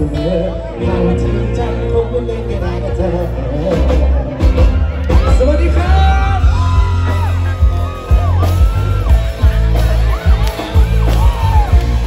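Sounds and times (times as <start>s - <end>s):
live rock band through pa: 0.0s - 12.0s
crowd cheering: 4.2s - 12.0s.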